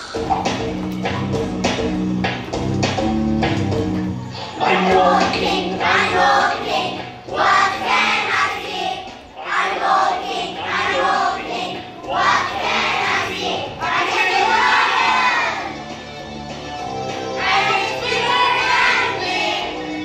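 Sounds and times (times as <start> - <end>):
recorded backing music: 0.0 - 20.0
children singing: 4.5 - 15.8, 17.4 - 20.0.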